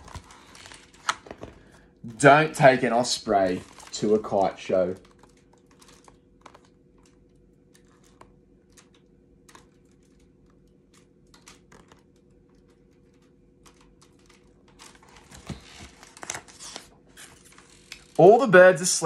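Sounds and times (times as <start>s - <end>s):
book rustling and clicks: 0.0s - 1.8s, 3.3s - 18.2s.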